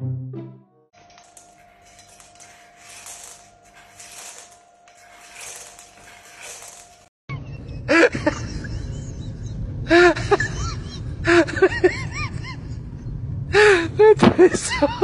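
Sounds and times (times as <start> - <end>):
low rumbling background: 7.4 - 14.2.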